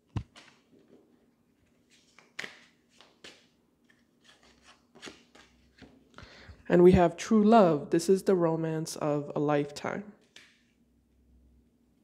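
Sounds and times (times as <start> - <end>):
cards clicking and rustling: 0.1 - 1.0, 1.6 - 6.1.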